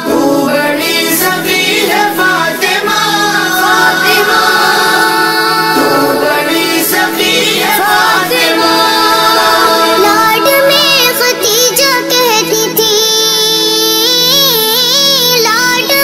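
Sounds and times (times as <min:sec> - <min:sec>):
sustained backing drone: 0:00.0 - 0:11.7
child singing: 0:00.0 - 0:16.0.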